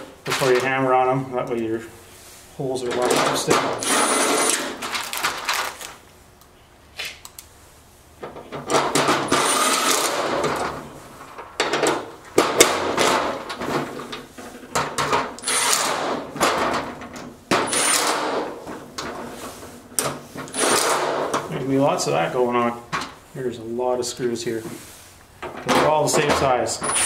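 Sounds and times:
screws and metal fittings clattering: 8.6 - 10.7, 20.4 - 21.5, 25.4 - 27.0.

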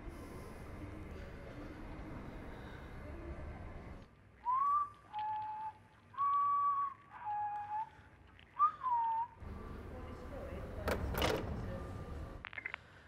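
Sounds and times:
man whistling a slow tune: 4.4 - 7.9, 8.6 - 9.4.

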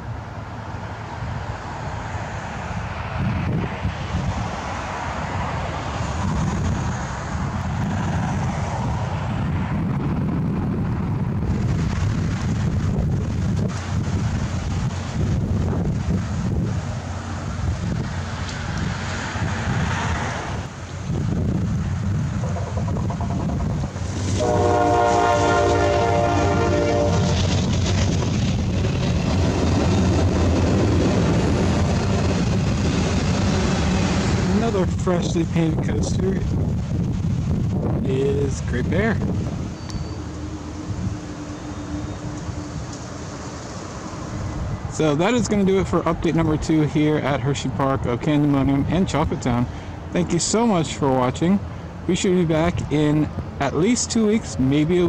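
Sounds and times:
train rumbling: 0.0 - 54.9
wind buffeting microphone: 2.6 - 50.8
train horn chord: 24.3 - 27.4.

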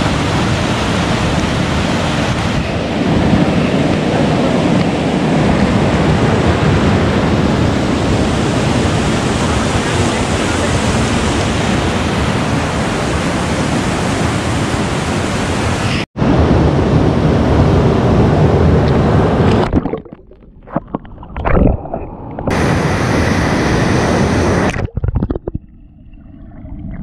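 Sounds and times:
river water rushing: 0.0 - 16.0, 22.4 - 24.8.

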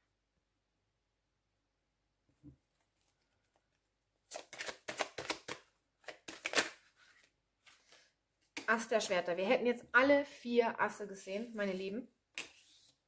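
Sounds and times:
cards being shuffled: 4.3 - 8.7, 12.4 - 13.0.

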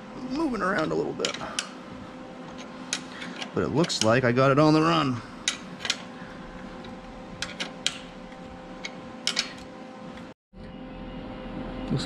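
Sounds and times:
faint steady hum: 0.0 - 12.0
wrench clicking on metal bolt: 7.4 - 8.1.

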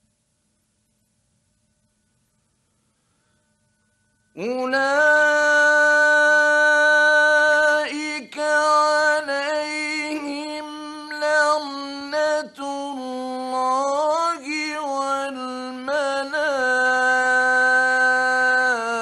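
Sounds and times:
short breaths: 2.6 - 3.8
man chanting melodically: 4.4 - 19.0.

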